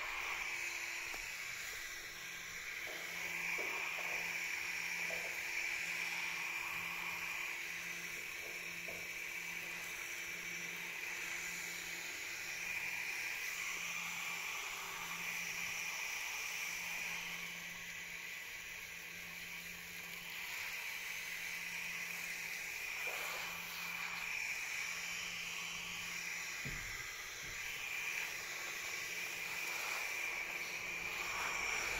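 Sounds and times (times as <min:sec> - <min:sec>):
hose spray hissing on leaves: 0:02.6 - 0:09.0, 0:20.2 - 0:31.9.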